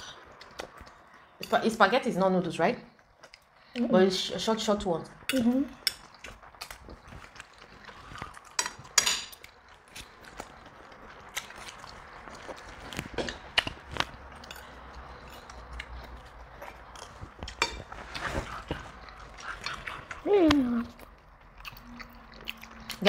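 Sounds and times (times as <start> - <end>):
eating sounds: 5.2 - 23.0
forks clicking and scraping on plates: 8.2 - 9.6, 17.0 - 18.0.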